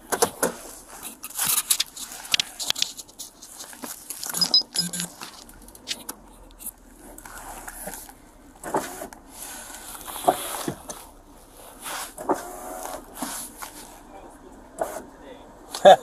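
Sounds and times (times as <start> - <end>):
clothing rustling against camera: 0.2 - 14.1
knocks and clicks: 4.3 - 6.2.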